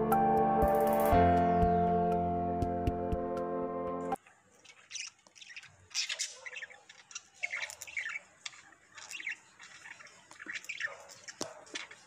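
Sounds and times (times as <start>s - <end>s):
budgerigar chirping: 4.6s - 12.0s.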